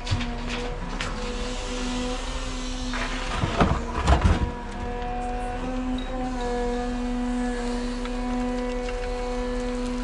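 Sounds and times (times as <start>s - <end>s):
excavator humming: 0.0s - 10.0s
earth and stones clattering into truck: 3.2s - 4.6s.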